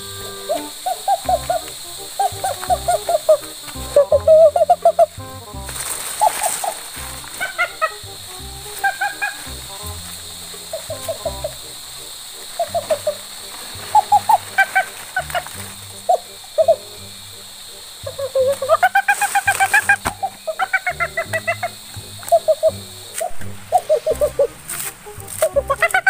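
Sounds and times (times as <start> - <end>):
stepping bass pattern: 0.0 - 5.9, 6.9 - 11.9.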